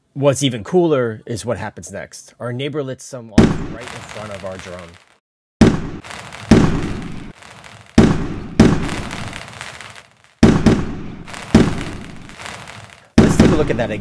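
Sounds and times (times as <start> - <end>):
fireworks bangs: 3.4 - 14.0.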